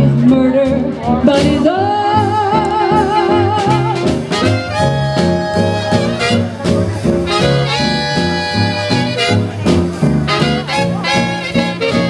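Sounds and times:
drums: 0.0s - 12.0s
upright bass: 0.0s - 12.0s
saxophones playing melody: 2.9s - 12.0s.

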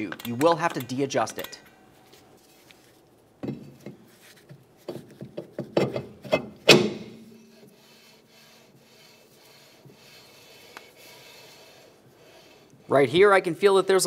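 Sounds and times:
metal clunks and scrapes: 3.4s - 7.7s.

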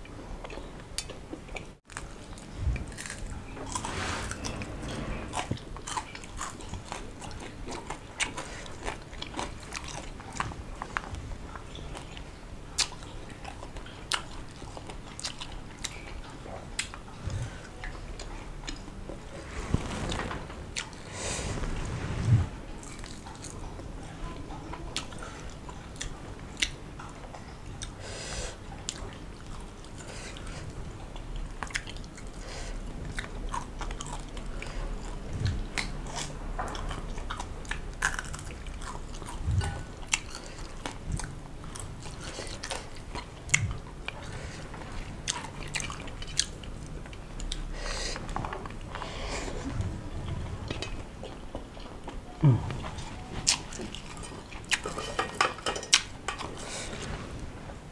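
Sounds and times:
person chewing food: 0.4s - 4.6s, 5.3s - 18.9s, 31.2s - 32.4s, 33.0s - 55.3s
food crunching: 0.5s - 4.4s, 35.4s - 47.6s.

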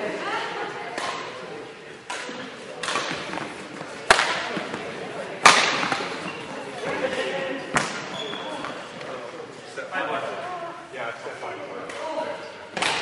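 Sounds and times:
rackets hitting shuttlecock: 0.9s - 1.4s, 2.0s - 6.5s, 7.7s - 8.8s, 12.7s - 13.0s.

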